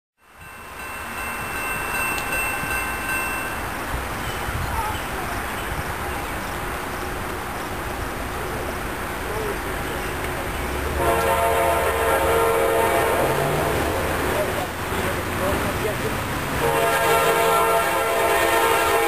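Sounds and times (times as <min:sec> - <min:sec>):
train rumble: 0:00.3 - 0:19.0
locomotive air horn: 0:10.9 - 0:14.3, 0:16.6 - 0:19.0.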